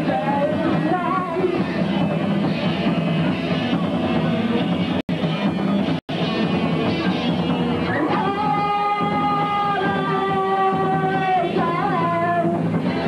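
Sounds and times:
person singing: 0.0 - 1.8, 7.9 - 13.0
drum kit: 0.0 - 13.0.

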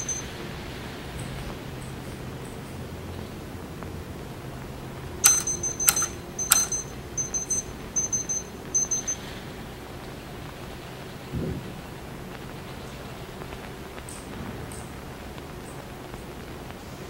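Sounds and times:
sharp metallic clicks: 0.0 - 0.3, 5.2 - 9.3
rapid high ticking: 0.0 - 0.5, 4.7 - 11.1
steady low hum: 0.0 - 17.0.

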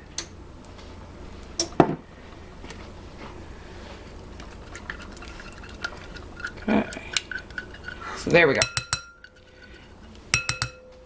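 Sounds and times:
low steady hum: 0.0 - 11.0
kitchen utensils knocking: 5.6 - 9.4, 10.3 - 10.9.

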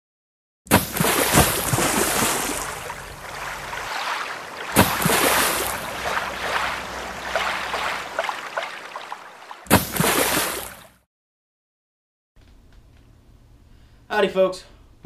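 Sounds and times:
rushing splashing water: 0.7 - 11.0.

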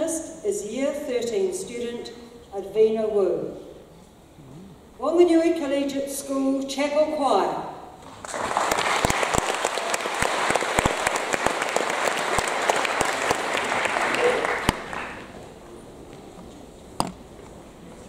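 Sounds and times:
audience applauding: 8.1 - 15.4.

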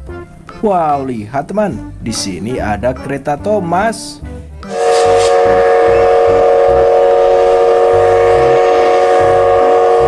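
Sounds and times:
steam locomotive whistle: 4.6 - 10.0.

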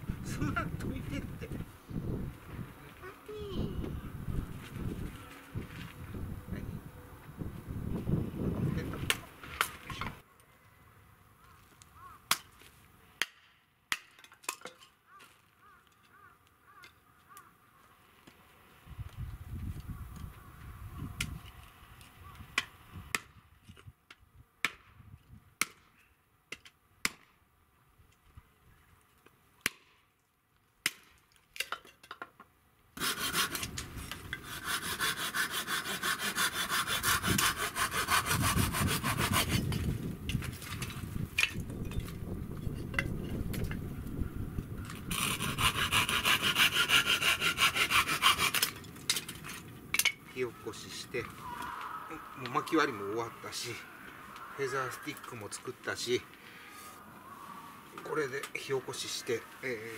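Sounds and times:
knife scraping wood: 33.0 - 39.9, 45.0 - 49.6.

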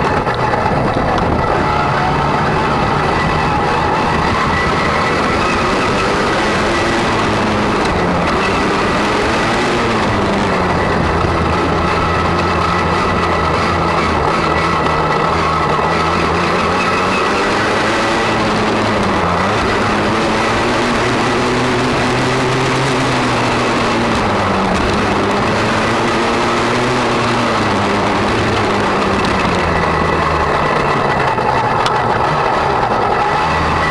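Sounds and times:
motocross bike engine: 0.0 - 33.9.

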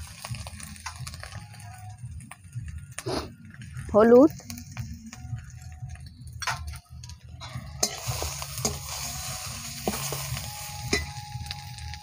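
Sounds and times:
paste sizzling in oil: 7.6 - 12.0.

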